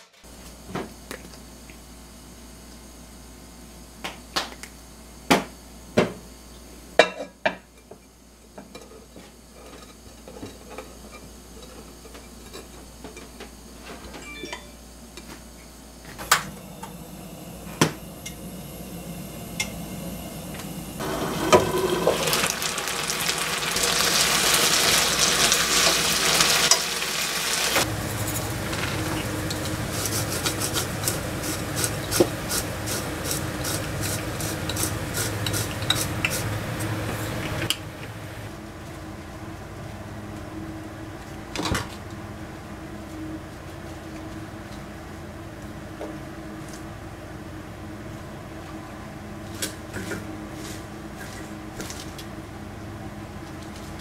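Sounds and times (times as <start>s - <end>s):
gas burner hum: 0.2s - 54.0s
vegetables sizzling in a pan: 20.9s - 37.3s.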